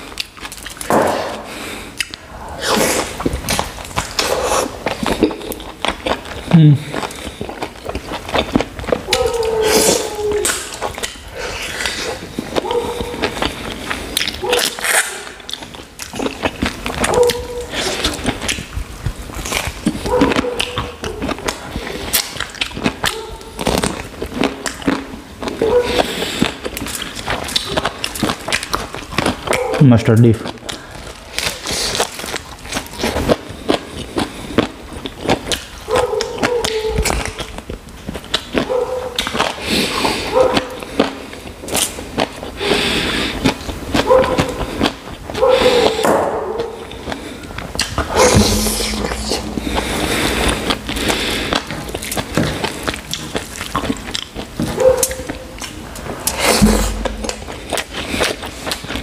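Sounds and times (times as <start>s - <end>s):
chewing and lip-smacking: 0.0s - 48.2s, 50.6s - 59.0s
steady high whine: 48.0s - 52.4s.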